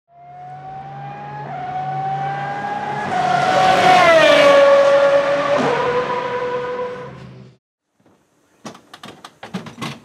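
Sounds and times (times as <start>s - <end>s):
race car accelerating and passing: 0.1s - 7.6s.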